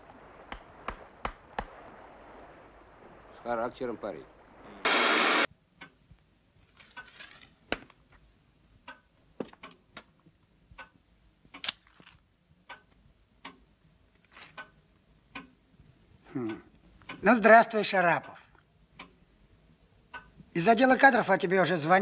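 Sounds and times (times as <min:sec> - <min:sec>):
clock ticking: 0:08.7 - 0:11.6, 0:12.6 - 0:13.8, 0:14.6 - 0:19.4, 0:20.0 - 0:20.5.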